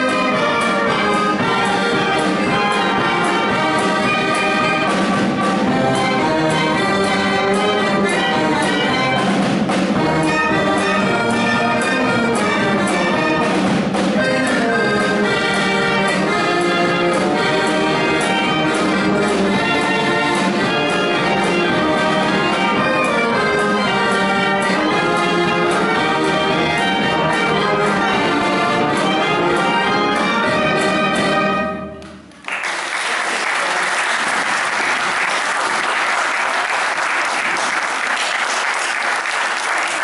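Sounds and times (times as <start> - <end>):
brass band playing: 0.0 - 40.0
audience applause: 32.3 - 40.0.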